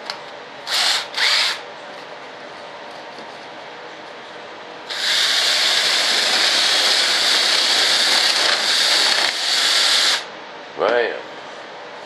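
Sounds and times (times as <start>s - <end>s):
cordless drill boring into wood: 0.7s - 1.6s, 4.9s - 10.3s.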